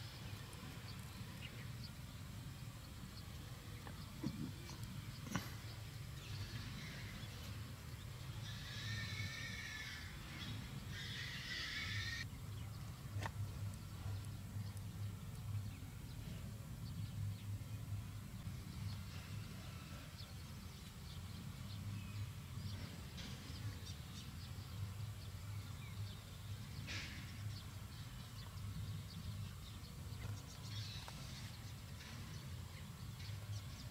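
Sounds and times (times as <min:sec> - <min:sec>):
steady low hum: 0:00.0 - 0:33.9
high wavering animal calls: 0:08.3 - 0:12.3.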